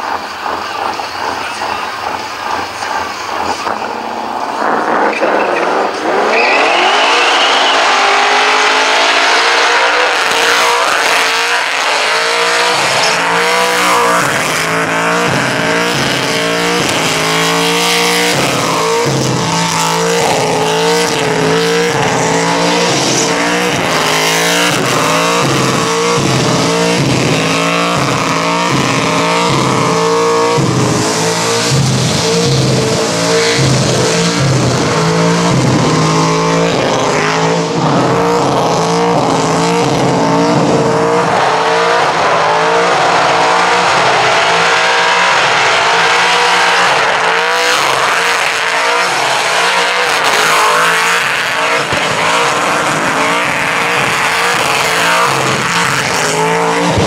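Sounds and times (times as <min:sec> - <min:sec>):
car engine revving hard: 0:00.0 - 0:57.0
tyre screech: 0:00.0 - 0:57.0.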